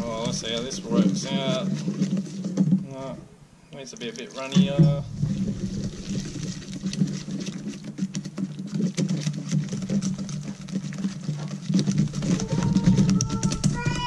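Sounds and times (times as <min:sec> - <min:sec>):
steady low hum: 0:00.0 - 0:08.3
whisk clicking against metal bowl: 0:06.9 - 0:14.0.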